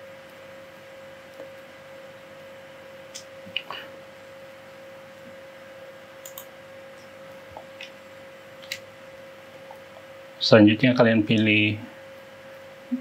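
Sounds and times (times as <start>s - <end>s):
high-pitched electrical whine: 0.0s - 13.0s
computer mouse clicks: 6.2s - 6.5s.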